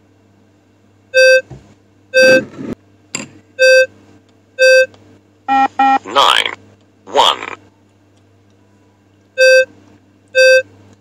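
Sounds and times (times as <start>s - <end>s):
short electronic beeps: 2.2s - 2.5s, 5.5s - 6.0s.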